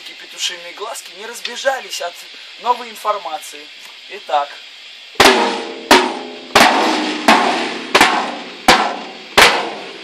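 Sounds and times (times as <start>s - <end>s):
drum kit single strokes: 5.1s - 10.0s.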